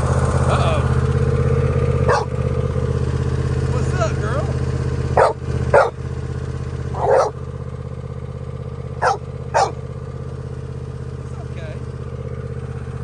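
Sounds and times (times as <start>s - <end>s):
riding lawnmower engine running: 0.0s - 13.0s
dog barking: 2.1s - 2.4s, 5.2s - 6.0s, 6.9s - 7.4s, 9.0s - 9.8s.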